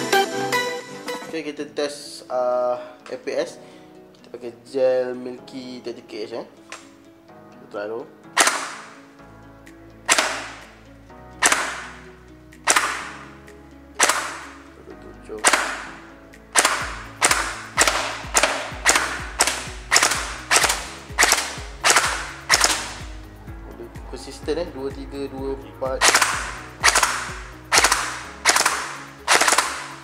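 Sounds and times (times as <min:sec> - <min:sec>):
gel blaster shots: 0:12.7 - 0:13.1, 0:16.6 - 0:23.0, 0:26.0 - 0:29.9.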